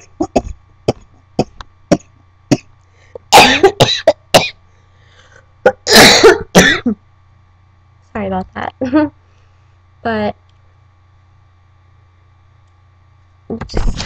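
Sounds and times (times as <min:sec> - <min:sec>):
woman coughing: 0:03.2 - 0:04.6, 0:05.7 - 0:07.0.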